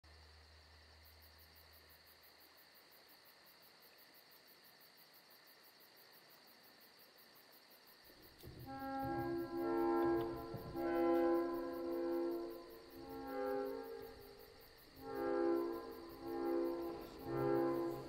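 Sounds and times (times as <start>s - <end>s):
high insect drone: 0.1s - 18.0s
insect chirping: 0.1s - 18.0s
low hum: 8.4s - 18.0s.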